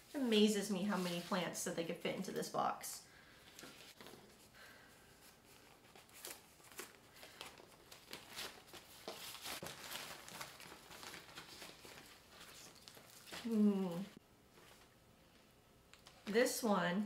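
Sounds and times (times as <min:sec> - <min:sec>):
packing paper crinkling: 0:05.2 - 0:14.9.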